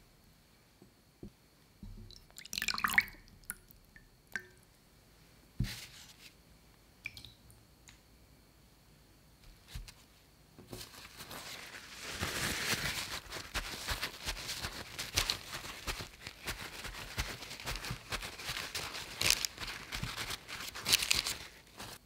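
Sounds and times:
soft wet plops: 1.8 - 4.6, 7.0 - 7.5
brine splashing and dripping: 1.9 - 4.6
paper towel rustling: 9.6 - 22.0.

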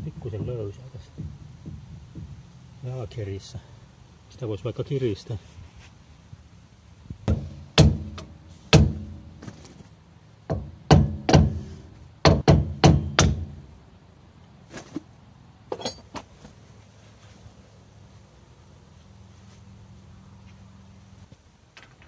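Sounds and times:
hammer on metal: 7.3 - 9.2, 10.5 - 13.6.

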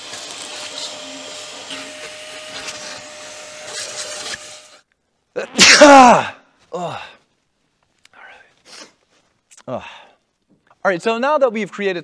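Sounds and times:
vacuum cleaner sucking: 0.0 - 4.8
man's loud outburst: 5.4 - 7.2.

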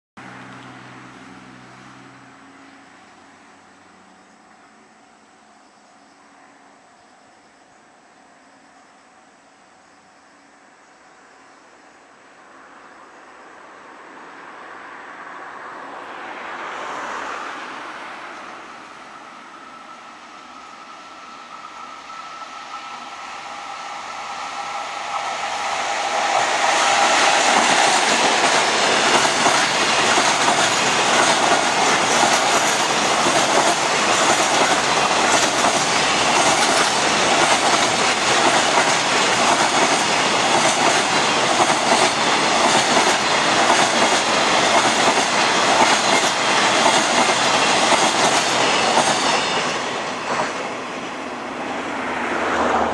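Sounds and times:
electric locomotive passing: 0.2 - 52.9
train wheels clickety-clack: 24.5 - 50.8.

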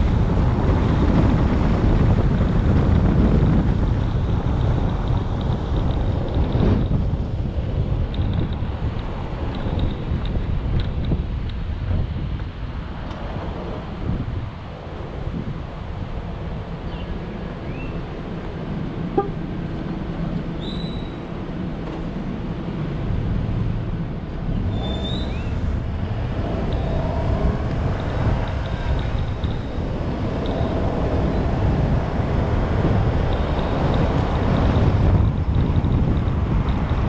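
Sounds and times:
vehicle road rumble: 0.0 - 37.0.

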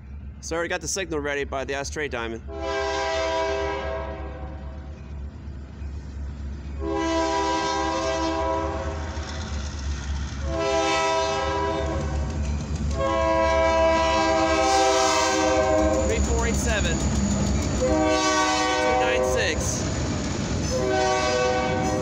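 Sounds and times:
low rumble of train: 0.0 - 22.0
locomotive air horn blasts: 2.5 - 4.5, 6.8 - 9.0, 10.4 - 12.2, 13.0 - 16.1, 17.8 - 19.6, 20.7 - 22.0.

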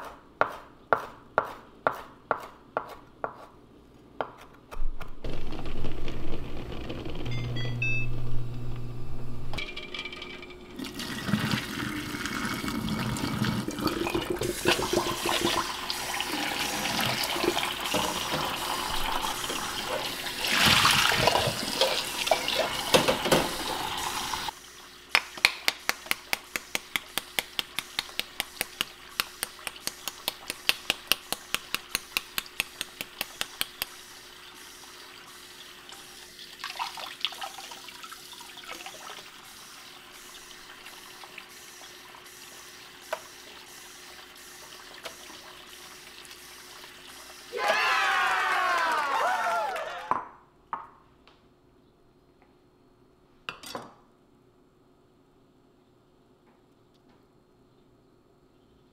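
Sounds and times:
tap water pouring into a pot: 10.8 - 24.8, 31.3 - 47.5.

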